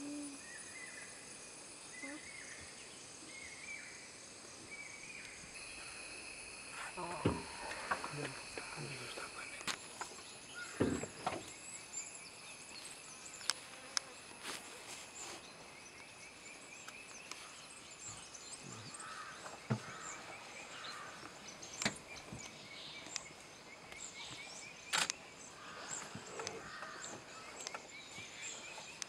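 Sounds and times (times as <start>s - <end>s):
insect drone: 0.0s - 29.0s
short knocks and thuds: 10.8s - 11.5s
bird chirps: 14.9s - 29.0s.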